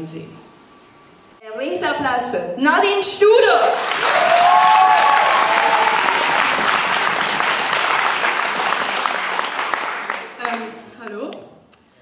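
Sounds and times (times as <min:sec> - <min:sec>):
audience clapping: 0:03.6 - 0:10.8
people whooping and cheering: 0:03.8 - 0:09.5.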